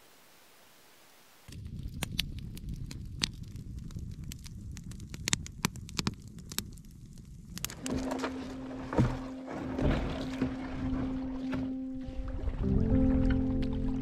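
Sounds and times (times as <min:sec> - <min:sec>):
campfire crackling: 0:00.2 - 0:09.5
fire pops and snaps: 0:01.4 - 0:08.4.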